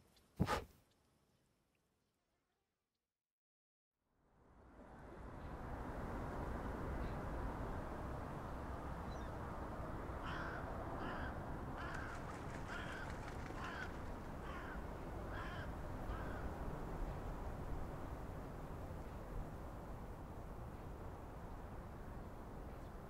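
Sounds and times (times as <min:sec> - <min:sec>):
crow cawing: 0:10.2 - 0:16.5.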